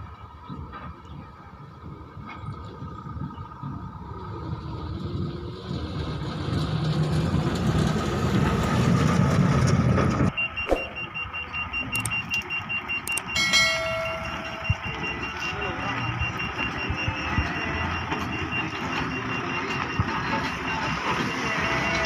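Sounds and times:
truck diesel engine passing: 1.1s - 22.0s
rapid electronic beeping: 10.3s - 22.0s
sharp clicks: 11.8s - 13.4s
short chime: 13.4s - 15.2s.

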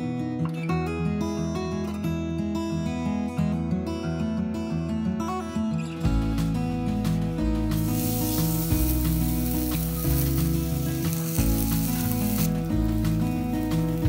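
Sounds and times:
background music with bass line: 6.0s - 14.0s
pork chop sizzling in grill pan: 7.7s - 14.0s.

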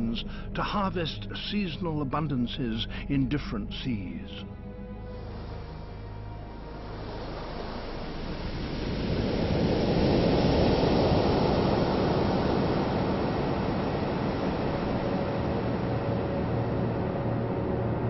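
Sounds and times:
heavy splashing seawater: 5.1s - 18.0s.

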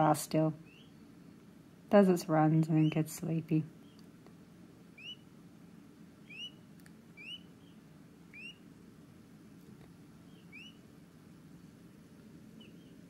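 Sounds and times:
peachick peeping: 0.5s - 1.4s, 2.6s - 4.1s, 4.9s - 8.8s, 10.2s - 11.0s, 12.4s - 13.0s.

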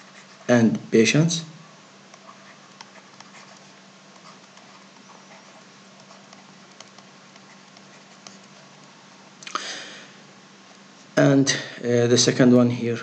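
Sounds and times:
low hum and hiss: 0.0s - 13.0s
stylus tapping on tablet: 6.0s - 8.9s.

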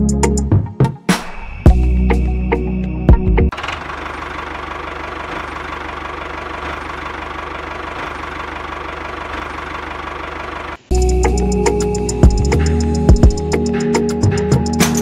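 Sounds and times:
tractor engine chugging: 3.5s - 14.6s.

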